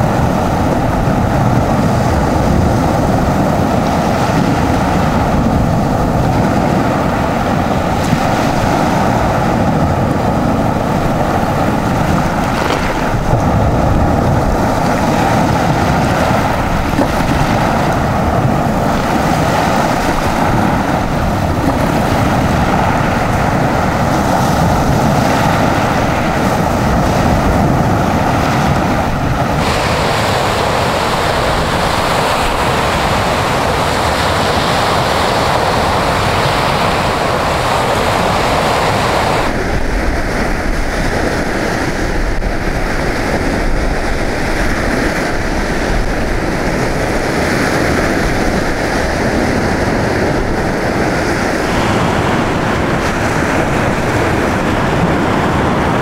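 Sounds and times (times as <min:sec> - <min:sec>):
wind on microphone: 0:00.0 - 0:56.0
small waves washing on shells: 0:07.5 - 0:39.6.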